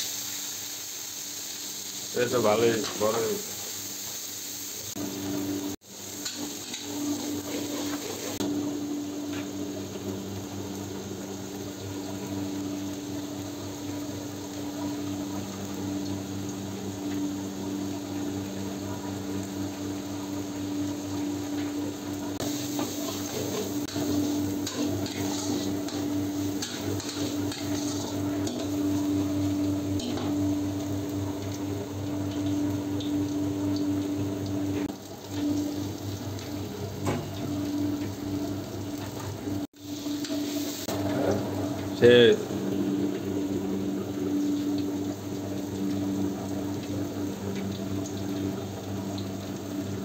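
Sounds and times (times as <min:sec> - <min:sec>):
food frying in a wok: 0:00.0 - 0:50.0
electric fan motor humming: 0:04.7 - 0:50.0
steel ladle scraping wok: 0:06.2 - 0:08.4, 0:22.5 - 0:28.7.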